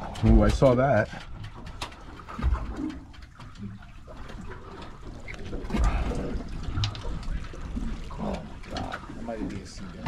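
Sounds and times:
water lapping against boat hull: 0.0 - 10.0.

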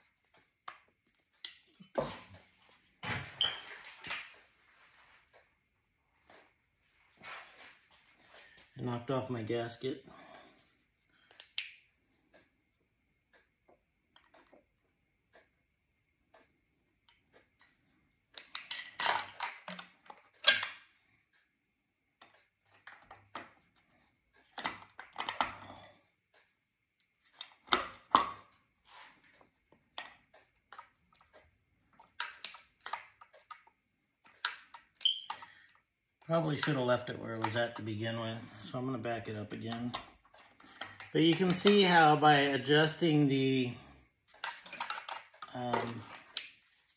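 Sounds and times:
metal clicks and clunks: 44.3 - 46.5.

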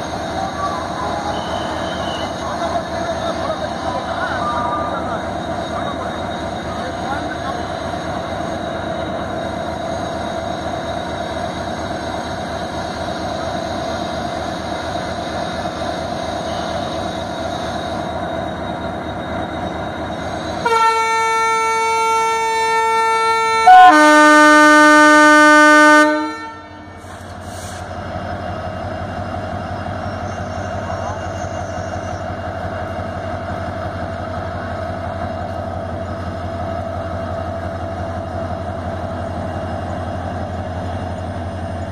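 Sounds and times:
diesel locomotive engine running: 0.0 - 41.9
locomotive horn: 20.6 - 27.1.

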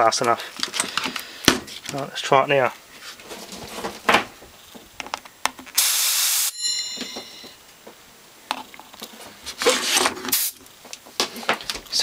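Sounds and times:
compressed air burst: 5.8 - 6.5, 9.8 - 10.6.

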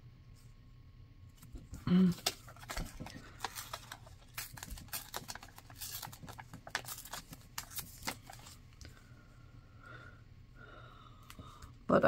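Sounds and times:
paper crinkling and rustling: 1.4 - 8.9.

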